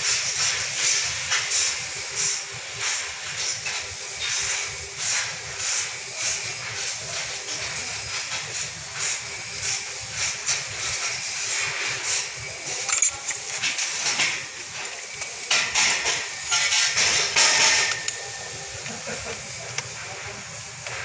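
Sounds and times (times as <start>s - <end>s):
steady hiss: 0.0s - 21.0s
metal cable clamps scraping: 9.0s - 18.3s.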